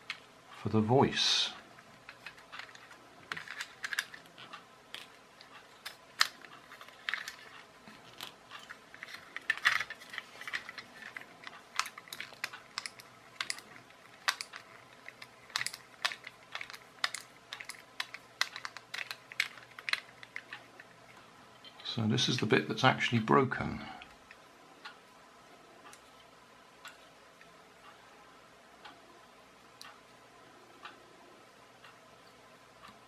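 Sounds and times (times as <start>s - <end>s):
plastic parts clicking: 0.0s - 0.3s, 1.8s - 21.2s.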